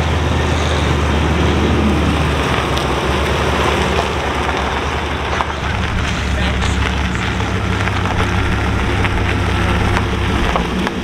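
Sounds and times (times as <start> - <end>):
car engine rumbling: 0.0 - 11.0
tyres hissing on gravel: 1.8 - 11.0.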